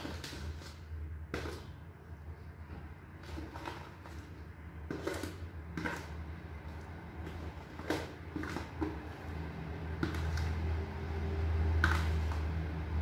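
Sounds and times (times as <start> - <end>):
spoon scraping batter from bowl: 0.0 - 12.7.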